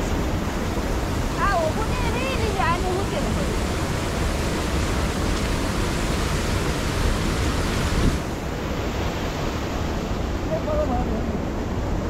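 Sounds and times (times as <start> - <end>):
steady rushing noise: 0.0 - 12.0.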